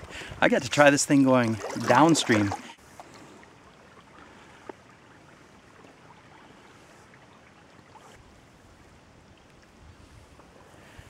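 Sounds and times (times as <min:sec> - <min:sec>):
river water trickling along hull: 0:00.0 - 0:11.0
small drips and ticks: 0:03.0 - 0:08.2, 0:09.3 - 0:09.8.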